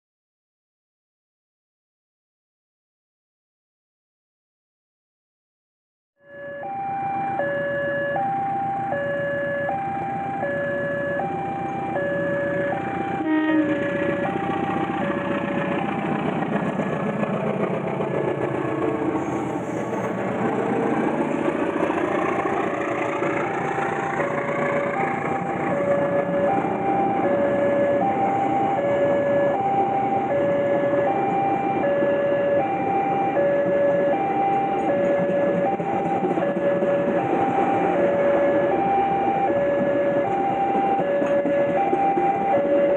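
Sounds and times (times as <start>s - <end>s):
level crossing two-tone alarm: 6.2s - 16.1s, 24.1s - 42.9s
train coaches rolling past: 11.1s - 42.9s
horn blast: 13.2s - 14.2s.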